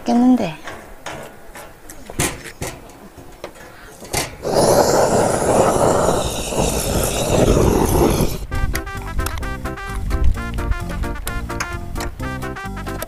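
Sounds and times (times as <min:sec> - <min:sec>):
gas torch roaring: 0:04.4 - 0:08.5
background music: 0:08.5 - 0:13.0.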